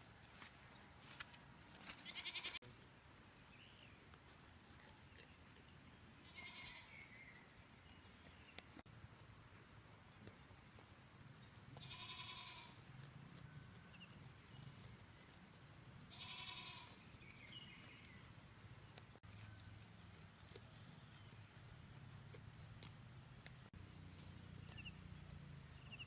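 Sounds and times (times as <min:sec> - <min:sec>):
goat bleating: 0:02.0 - 0:02.6, 0:06.2 - 0:07.0, 0:11.8 - 0:12.8, 0:16.1 - 0:17.0.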